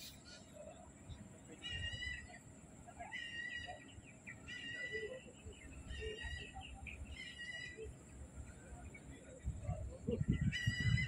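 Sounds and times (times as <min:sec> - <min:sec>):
bird calling: 0:00.0 - 0:08.1.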